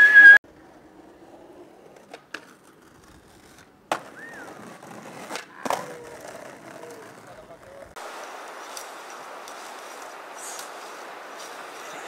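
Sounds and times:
skateboard wheels rolling on asphalt: 0.1s - 12.0s
skateboard clacking on ground: 0.5s - 7.9s.

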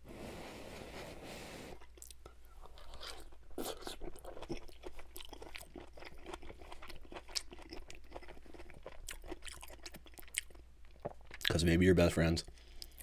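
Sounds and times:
chewing crunchy vegetables: 1.8s - 11.7s.

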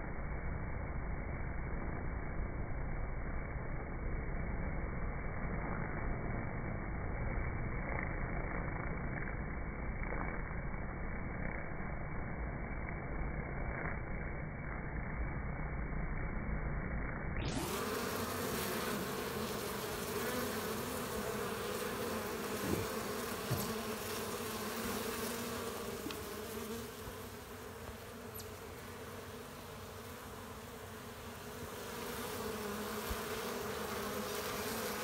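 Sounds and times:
honeybees buzzing: 17.5s - 35.0s.

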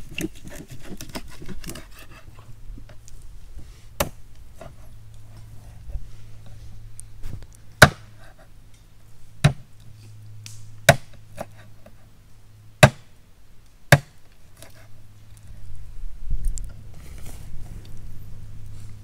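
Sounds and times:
blade chopping strikes: 7.8s - 8.1s.

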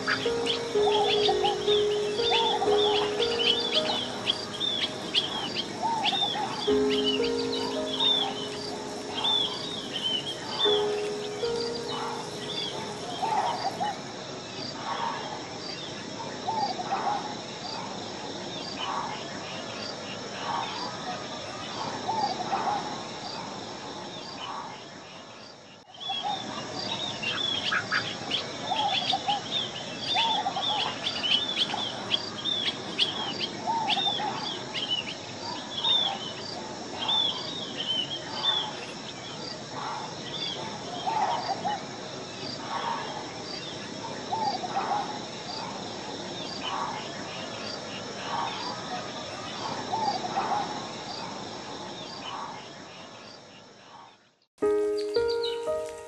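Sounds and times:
lower bird calls: 0.0s - 14.0s
pulsing insect drone: 0.0s - 15.6s.

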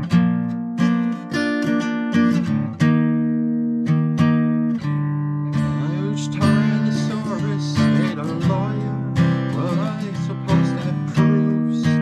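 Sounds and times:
acoustic guitar strumming chords: 0.0s - 12.0s
man singing: 5.5s - 12.0s.

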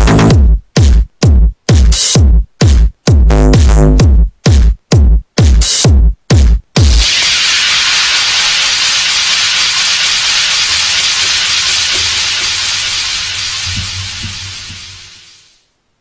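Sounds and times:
synthesized white noise hiss: 3.8s - 16.0s.

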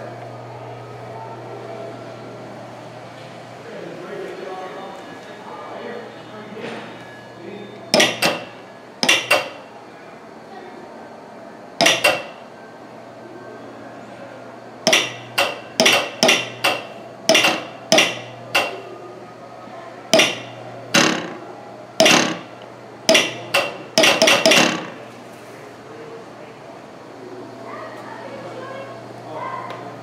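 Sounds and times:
sharp ringing metal hits: 7.9s - 9.6s, 11.8s - 12.4s, 14.9s - 18.9s, 20.2s - 21.4s, 23.1s - 25.0s.

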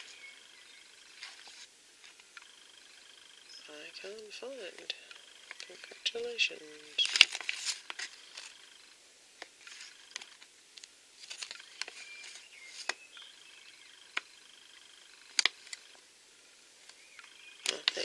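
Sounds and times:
paper rustling and crinkling: 7.0s - 8.6s, 9.6s - 10.5s, 11.2s - 13.0s
sharp clicks: 15.2s - 16.0s.

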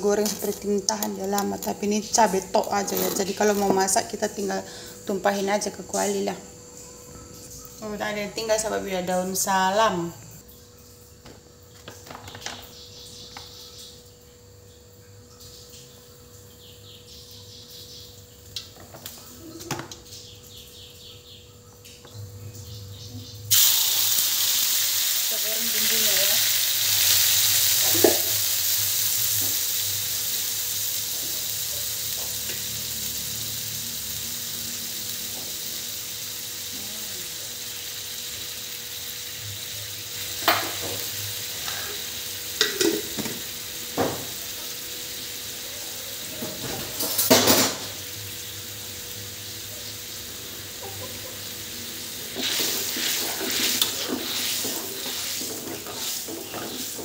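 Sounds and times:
paste sizzling in hot oil: 23.5s - 57.0s
stirring in wok: 52.1s - 57.0s.

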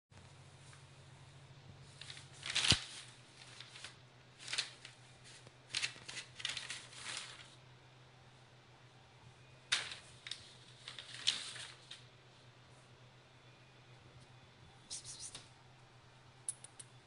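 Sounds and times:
newspaper crinkling: 1.8s - 7.6s, 9.7s - 12.1s.

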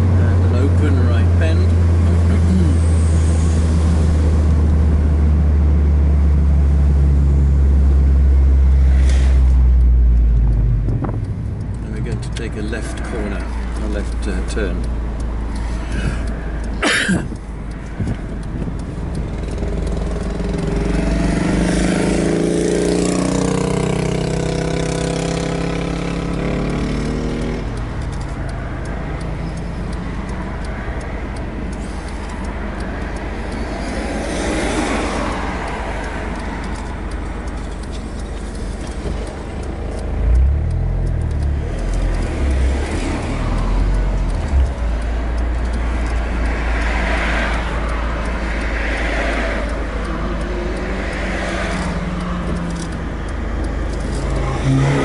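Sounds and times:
car engine accelerating: 0.0s - 55.0s
wind and road noise: 0.0s - 55.0s
low thumps: 9.5s - 12.4s.

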